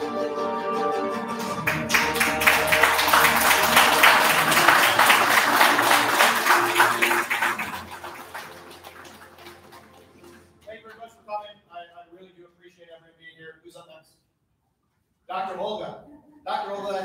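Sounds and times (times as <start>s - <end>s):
soft background music: 0.0s - 11.4s
audience applauding: 1.3s - 10.6s.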